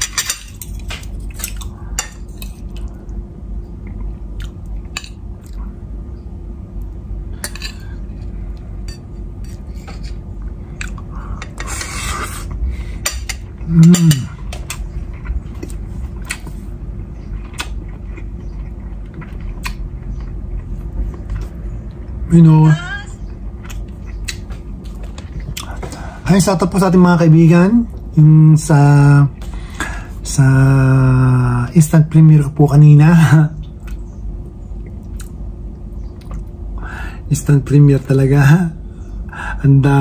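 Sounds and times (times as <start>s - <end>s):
cutlery scraping ceramic plates: 7.4s - 10.2s.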